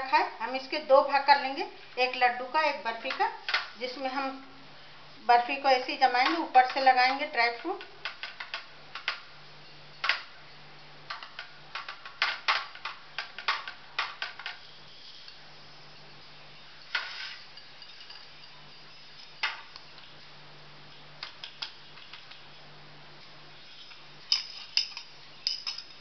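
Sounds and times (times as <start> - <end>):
metal spoon clinking on utensils: 17.0 - 19.4, 23.7 - 26.0.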